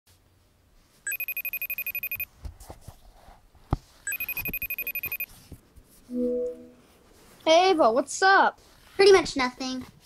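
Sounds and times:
electronic trilling phone rings: 1.1 - 2.3, 4.1 - 5.3.

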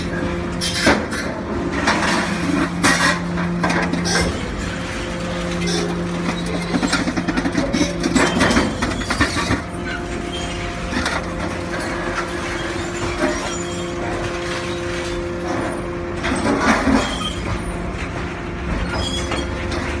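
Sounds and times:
machinery hum: 0.0 - 20.0
scrap metal clattering and crunching: 0.0 - 20.0.

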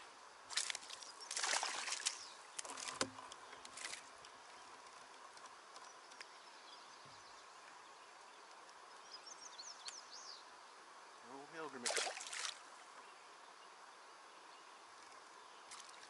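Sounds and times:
faint river hiss: 0.0 - 16.0
water splashes: 0.5 - 4.2, 11.6 - 12.7.

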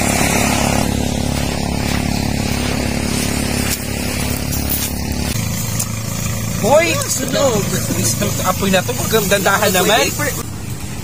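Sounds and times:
small engine droning: 0.0 - 11.0
hiss: 7.4 - 10.4.

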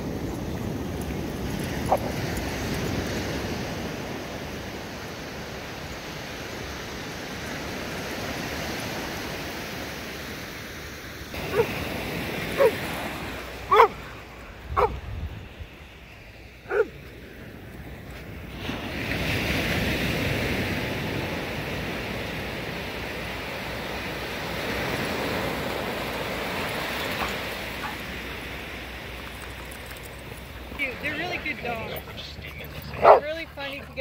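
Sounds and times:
surf washing: 0.0 - 34.0
dog barking: 11.4 - 11.8, 12.5 - 12.8, 13.7 - 14.1, 14.8 - 15.0, 16.7 - 17.0, 32.9 - 33.4.

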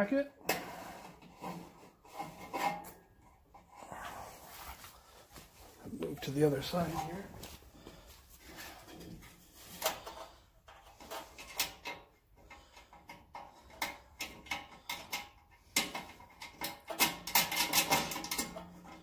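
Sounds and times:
metallic clicks of screw and nut: 9.8 - 19.0.

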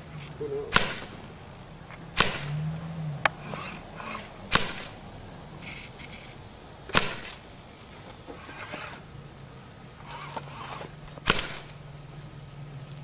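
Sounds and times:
gunshots: 0.7 - 1.2, 2.1 - 2.6, 4.5 - 5.0, 6.9 - 7.4, 11.2 - 11.7.

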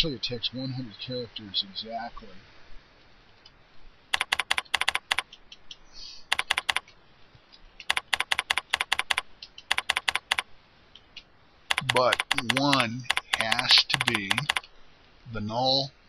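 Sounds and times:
keyboard typing clicks: 4.1 - 7.0, 7.8 - 14.7.

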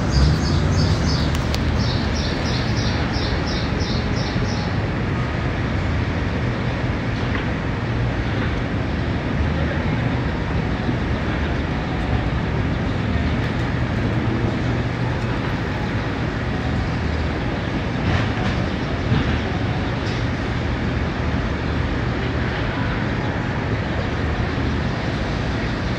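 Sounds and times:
city street traffic rumble: 0.0 - 25.9.

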